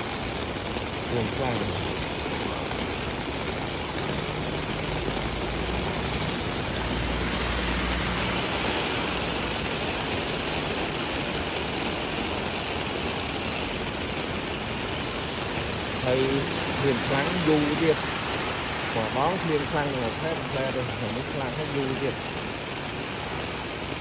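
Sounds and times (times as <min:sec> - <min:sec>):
heavy rain on street: 0:00.0 - 0:24.0
low rumble of road traffic: 0:00.0 - 0:24.0.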